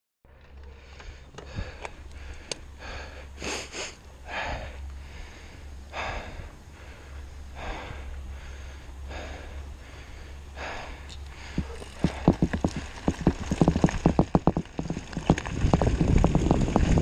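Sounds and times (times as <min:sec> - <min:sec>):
bike clicks and rattles: 0:00.3 - 0:03.1, 0:09.9 - 0:17.0
person breathing hard: 0:00.6 - 0:12.8
bike rolling on gravel: 0:04.0 - 0:17.0.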